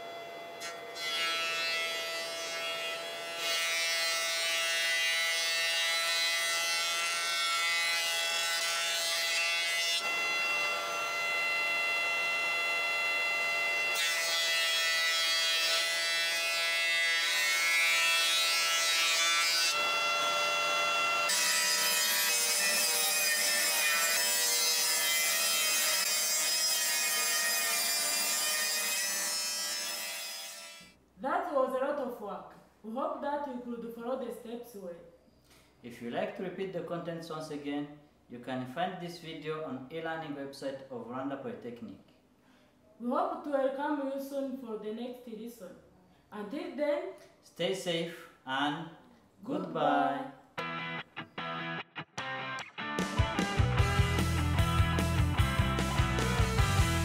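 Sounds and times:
table saw ripping a board: 0.6 - 30.9
thickness planer whining: 10.0 - 27.1.

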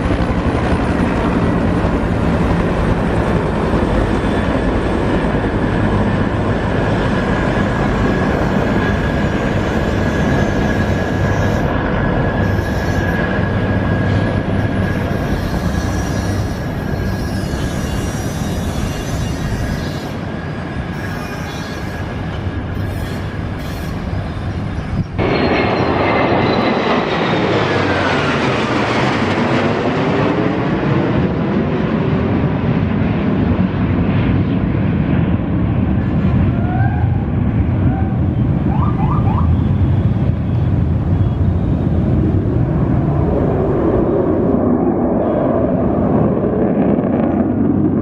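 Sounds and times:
military aircraft engine roar: 0.0 - 48.0
jet whine falling in pitch: 8.0 - 29.3.

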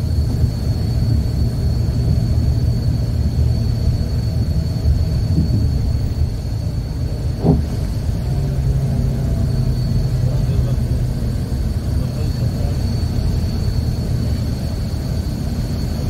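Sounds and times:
vehicle engine and road noise: 0.0 - 16.0
brief knock: 7.4 - 7.8.

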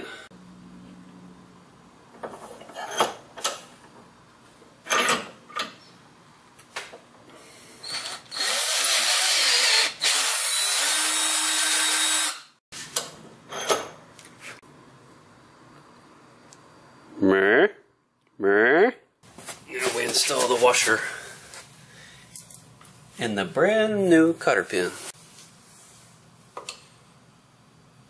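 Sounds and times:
drill cutting through metal: 7.9 - 12.6.

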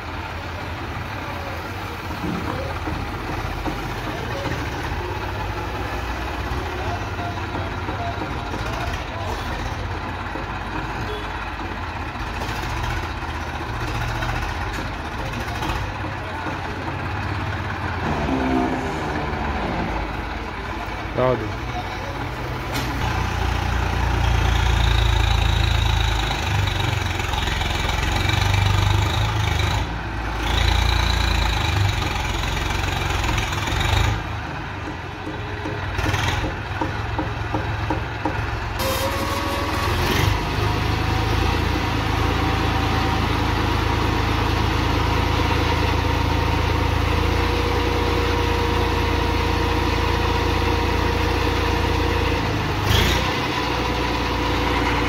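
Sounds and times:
tractor diesel engine revving: 0.0 - 55.0.

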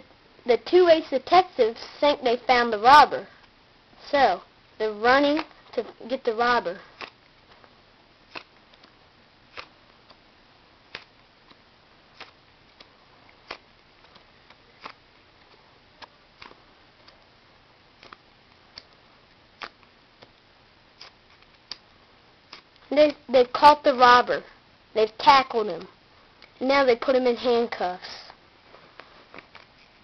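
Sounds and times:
playing cards clicking and snapping: 8.3 - 10.2, 12.2 - 15.0.

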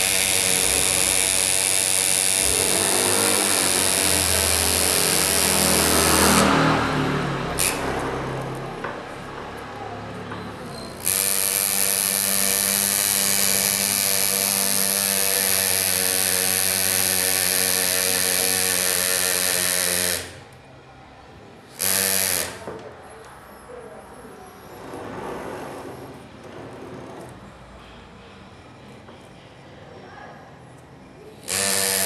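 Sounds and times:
pneumatic engraver buzzing: 0.0 - 6.8, 7.4 - 8.6, 10.8 - 20.6, 21.7 - 22.8, 31.4 - 32.0.

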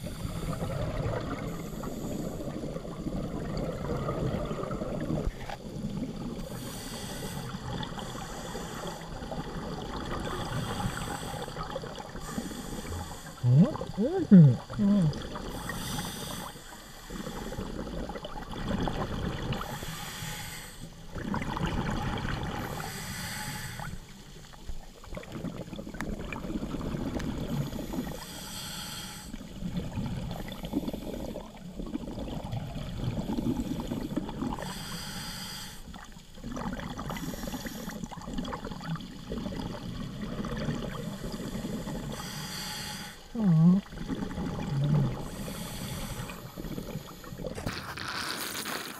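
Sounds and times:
exhaust bubbling underwater: 0.0 - 6.6, 9.0 - 15.8, 17.2 - 19.8, 21.1 - 22.9, 25.1 - 28.2, 29.4 - 34.7, 38.0 - 42.3, 43.3 - 47.8
regulator hissing inhale: 6.5 - 9.2, 10.4 - 11.6, 12.2 - 13.4, 15.5 - 17.8, 19.6 - 21.0, 22.6 - 24.1, 27.7 - 29.5, 33.4 - 36.0, 37.1 - 38.1, 41.2 - 43.3, 45.3 - 47.5.

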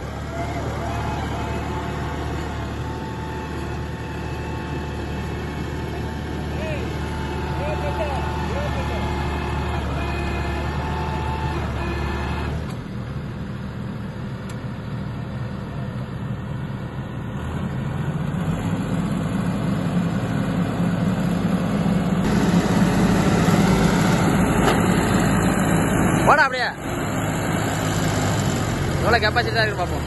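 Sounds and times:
tractor diesel engine under load: 0.0 - 30.0.

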